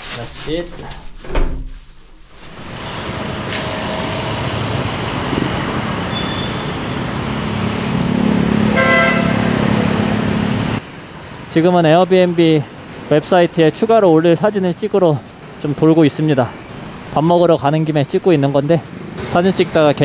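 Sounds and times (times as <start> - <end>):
street traffic passing: 2.5 - 20.0
short vehicle horn toot: 8.7 - 9.5.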